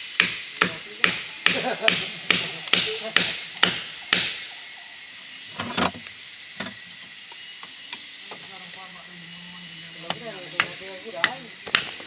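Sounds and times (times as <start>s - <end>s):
chopping strikes: 0.2s - 4.5s, 10.1s - 12.0s.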